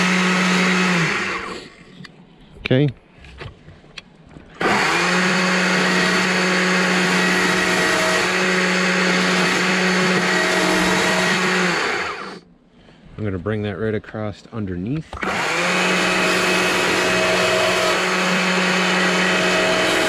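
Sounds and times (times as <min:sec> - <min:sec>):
electric chainsaw cutting log: 0:00.0 - 0:01.7, 0:04.6 - 0:12.4, 0:15.1 - 0:20.0.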